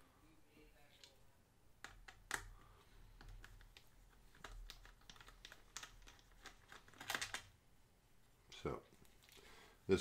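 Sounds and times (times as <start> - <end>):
small clicks and taps: 1.8 - 7.5.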